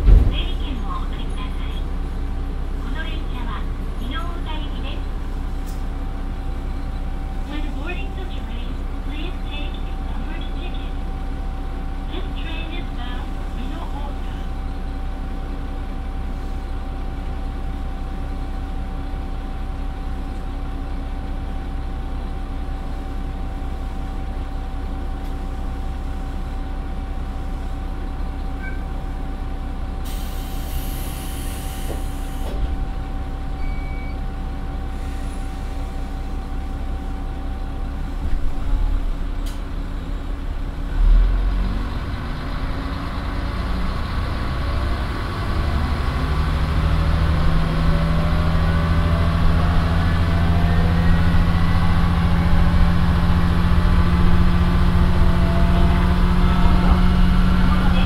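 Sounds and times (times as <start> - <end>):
low thump of drive engaging: 0.0 - 0.8
diesel engine idling: 0.0 - 58.0
compressed air hiss: 30.0 - 32.5.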